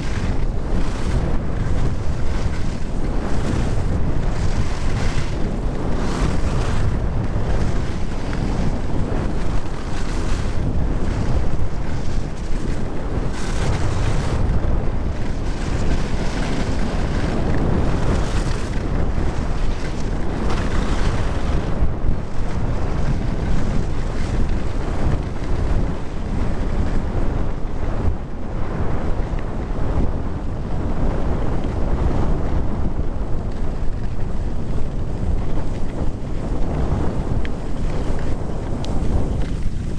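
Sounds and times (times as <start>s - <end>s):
skis carving on snow: 0.0s - 39.9s
wind buffeting microphone: 0.0s - 39.9s.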